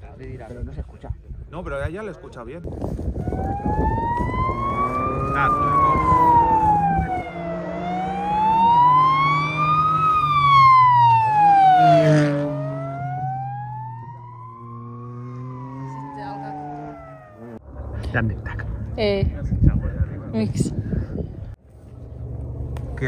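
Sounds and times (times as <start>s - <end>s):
siren wailing: 3.2s - 17.6s
car engine: 4.2s - 19.1s.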